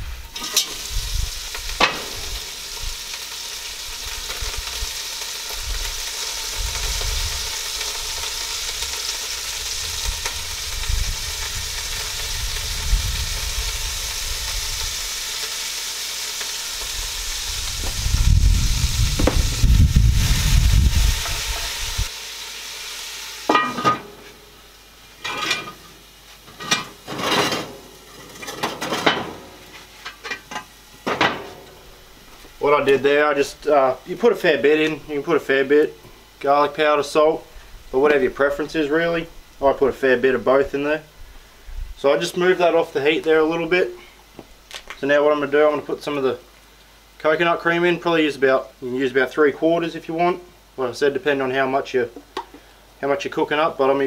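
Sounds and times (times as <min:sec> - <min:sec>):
fish sizzling in oil: 0:00.0 - 0:43.9
low rumble: 0:17.1 - 0:22.1.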